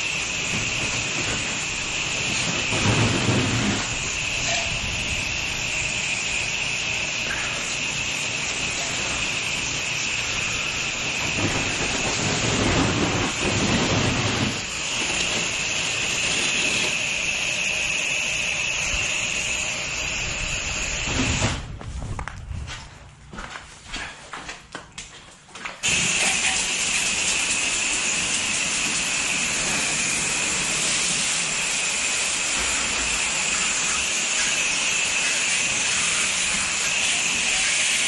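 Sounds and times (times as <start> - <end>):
pressure washer spraying: 0.0 - 21.6, 25.8 - 38.0.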